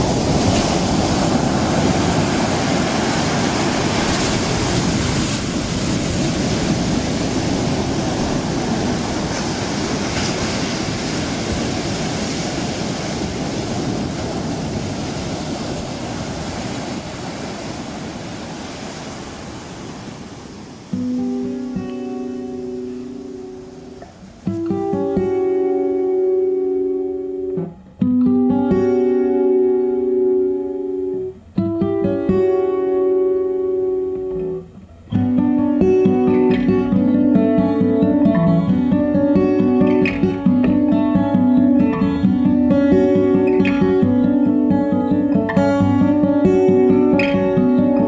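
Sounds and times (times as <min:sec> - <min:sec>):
acoustic guitar playing: 0:00.0 - 0:48.0
sea surf washing onto beach: 0:00.0 - 0:48.0.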